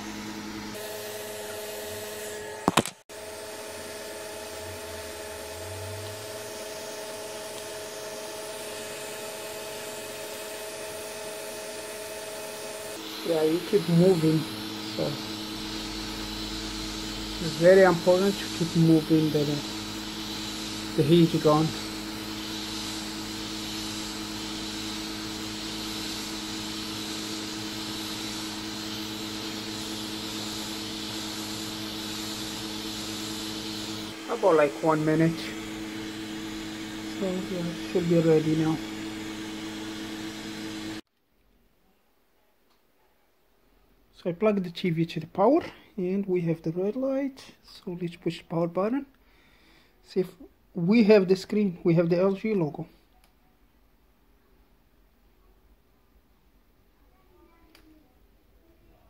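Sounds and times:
heat gun blowing: 0:00.0 - 0:41.0.

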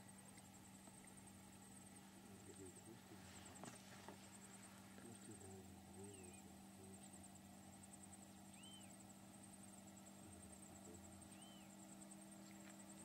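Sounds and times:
faint chirps: 0:00.0 - 0:13.0
steady low hum: 0:00.0 - 0:13.0
pulsing high-pitched chirr: 0:04.3 - 0:13.0.

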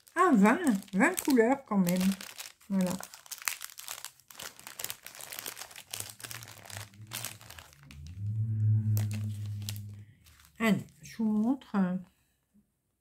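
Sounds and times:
plastic bags crinkling: 0:00.0 - 0:08.1, 0:09.0 - 0:11.0
steady low hum: 0:06.8 - 0:11.0.

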